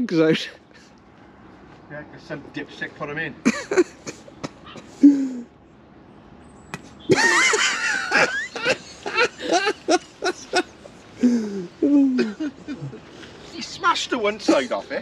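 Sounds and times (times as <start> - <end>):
person laughing: 3.4 - 5.4, 7.1 - 13.0.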